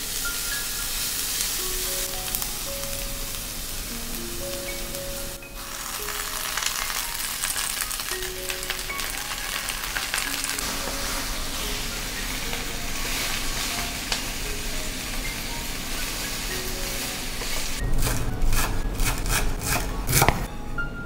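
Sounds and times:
vegetables sizzling in a frying pan: 0.0 - 17.8
knife chopping on wooden board: 18.0 - 20.4.

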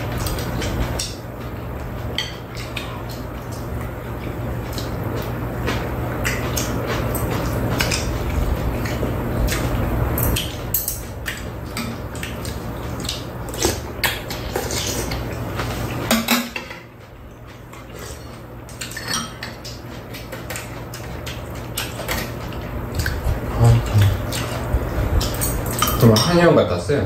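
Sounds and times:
low steady hum: 0.0 - 27.0
utensils clinking against bowls: 4.2 - 9.6, 10.2 - 15.2, 16.0 - 16.9, 17.8 - 24.6, 25.2 - 26.6.

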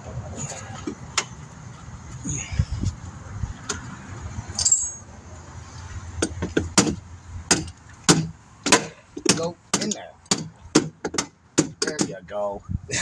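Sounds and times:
light metallic clink: 4.6 - 5.0.

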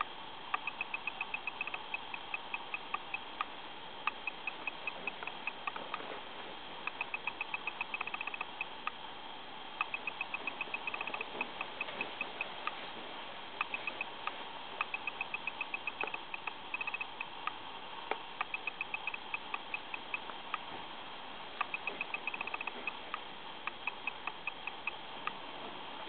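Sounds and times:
light mechanical ticking: 0.0 - 6.1, 6.8 - 9.1, 9.7 - 12.9, 13.5 - 20.8, 21.5 - 25.5
steady hiss: 0.0 - 26.0.

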